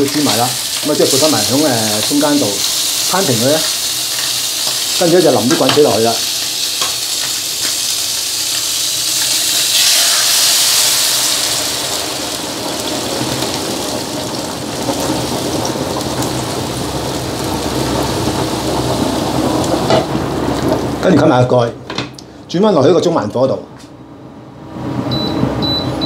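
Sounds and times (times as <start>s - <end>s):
rushing bubbling hiss: 0.0s - 6.7s
boiling water poured into wok: 0.0s - 20.7s.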